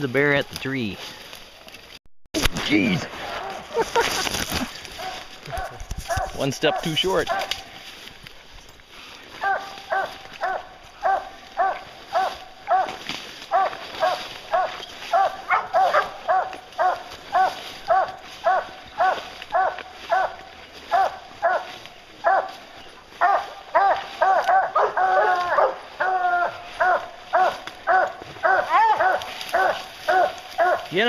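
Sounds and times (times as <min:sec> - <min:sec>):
hounds barking: 0:04.9 - 0:07.8, 0:09.3 - 0:31.0.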